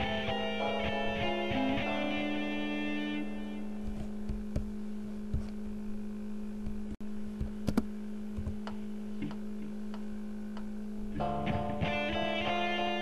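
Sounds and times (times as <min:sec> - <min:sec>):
plucked guitar melody: 0:00.0 - 0:03.5, 0:11.2 - 0:13.0.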